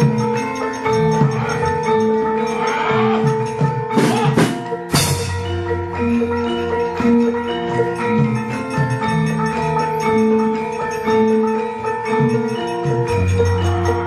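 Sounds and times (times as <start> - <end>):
metallophones playing melody: 0.0 - 14.0.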